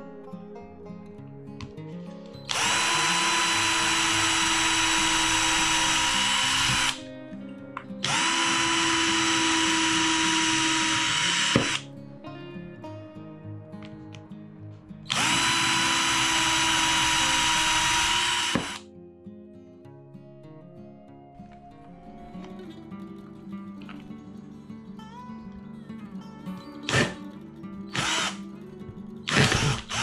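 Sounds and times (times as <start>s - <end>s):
background music: 0.0s - 30.0s
cordless drill whining: 2.5s - 7.0s, 8.0s - 11.8s, 15.1s - 18.8s, 26.9s - 27.2s, 27.9s - 28.4s, 29.3s - 30.0s.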